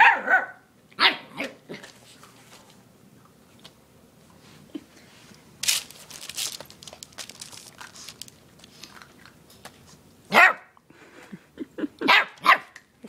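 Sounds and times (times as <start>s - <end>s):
puppy bark: 0.0s - 1.6s, 10.3s - 10.8s, 12.0s - 12.8s
puppies crinkling newspaper: 5.6s - 9.8s.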